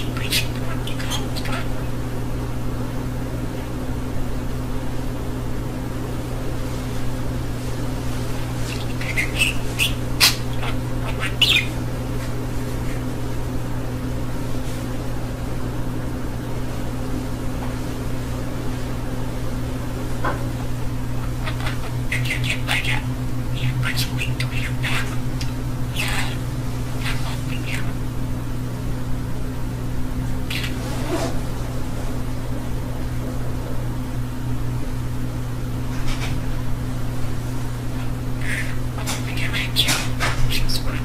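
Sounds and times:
budgerigar chirping: 0.0 - 1.9, 8.6 - 11.8, 21.2 - 28.0, 30.5 - 30.8, 38.4 - 41.0
steady low hum: 0.0 - 41.0.

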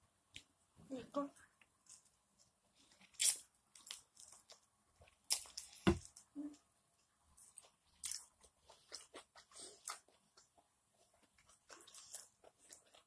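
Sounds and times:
thump: 5.8 - 6.0
person chewing steak: 7.5 - 13.0.

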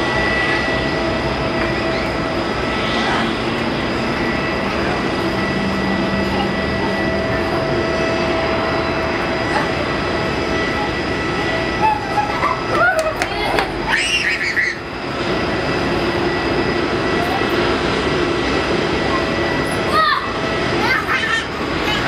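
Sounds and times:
jet engines whining: 0.0 - 22.0
voices: 0.1 - 22.0.

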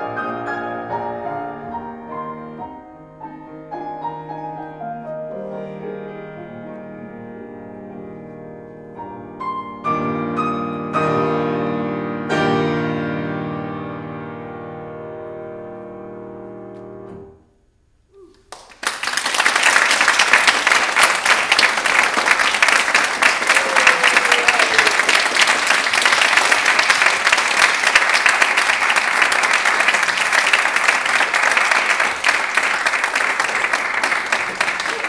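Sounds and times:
audience applause: 18.4 - 35.0.

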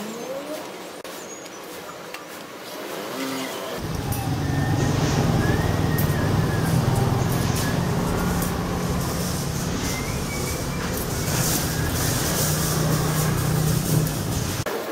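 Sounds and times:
street traffic: 3.8 - 14.7
vehicle engine rumbling: 3.8 - 14.7.

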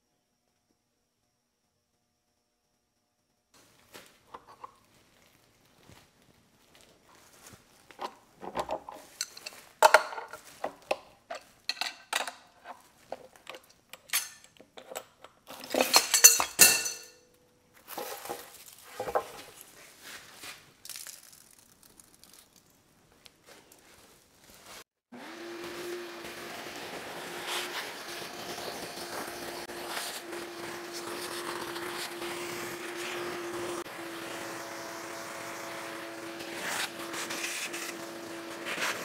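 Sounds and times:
metal tools clinking: 8.0 - 19.6.

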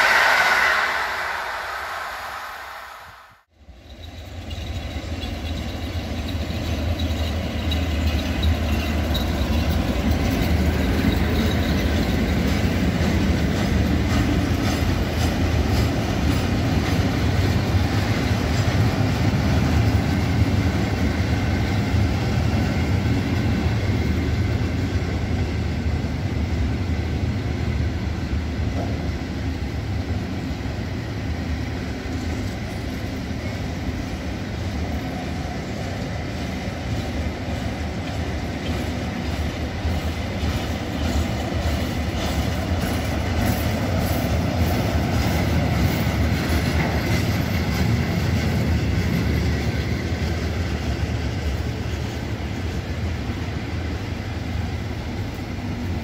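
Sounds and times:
freight train rolling on rails: 0.0 - 56.0.

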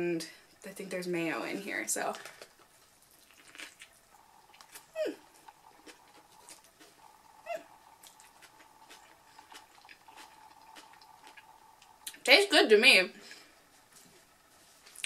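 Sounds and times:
mouth chewing sounds: 2.2 - 12.3
person humming: 4.9 - 5.3.

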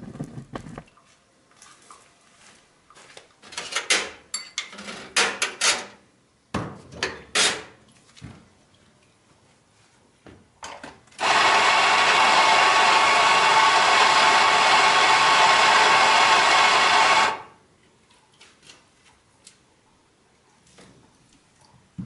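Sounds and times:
electric coffee grinder running: 11.2 - 17.5.

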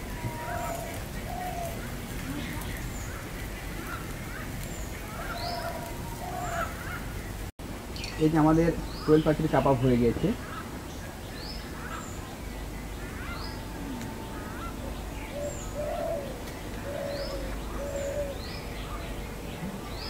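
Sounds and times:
bird high rising call: 0.0 - 3.2, 5.0 - 7.2, 11.7 - 20.0
bird low notes: 0.0 - 20.0.

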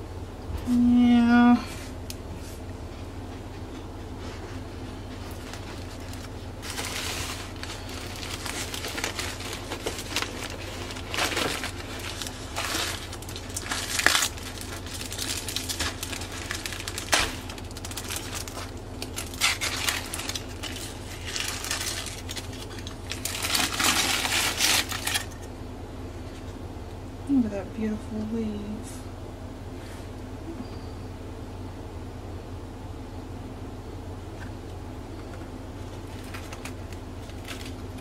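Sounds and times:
faint low hum: 0.0 - 38.0
paper and foil crinkling: 4.2 - 25.5, 35.8 - 38.0.

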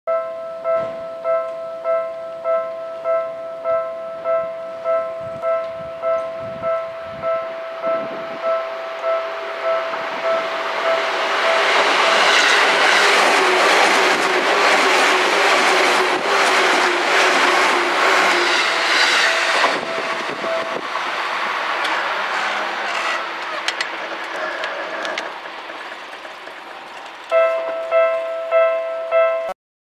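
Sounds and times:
level-crossing bell: 0.1 - 12.2, 27.3 - 29.6
train wheels clattering on rails: 9.9 - 28.2.

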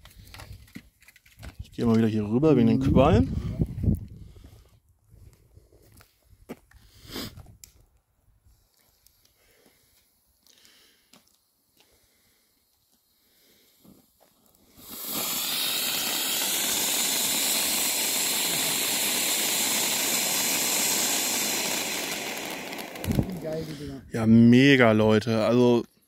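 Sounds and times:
firework fountain hissing: 14.6 - 23.9.

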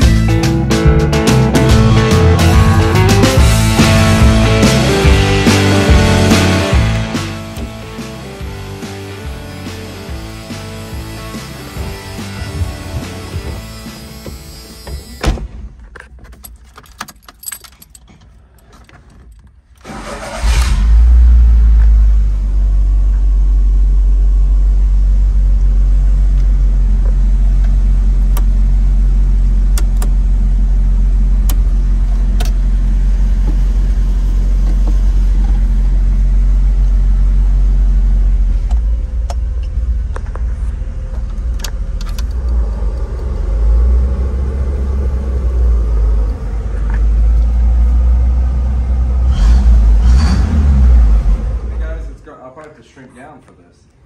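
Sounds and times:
car engine starting and idling: 0.0 - 52.8
ignition key clicks: 29.7 - 30.2.

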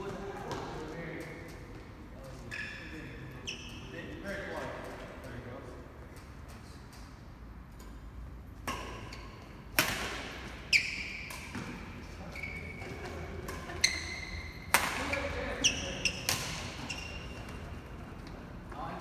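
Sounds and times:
shoes squeaking on court: 0.0 - 4.2, 10.2 - 18.7
racket striking shuttlecock: 8.6 - 11.8, 13.4 - 15.1, 16.2 - 16.8.

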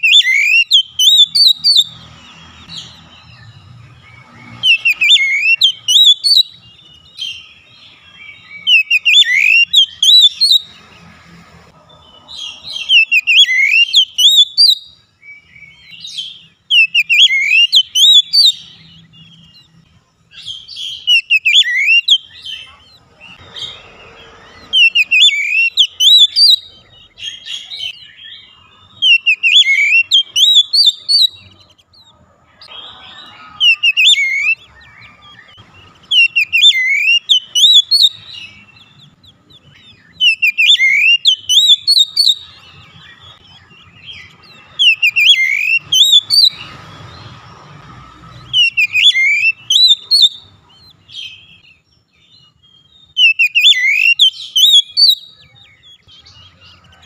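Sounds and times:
songbird whistling phrases: 0.0 - 10.7, 12.4 - 19.5, 20.4 - 31.7, 32.6 - 46.7, 48.4 - 57.0.

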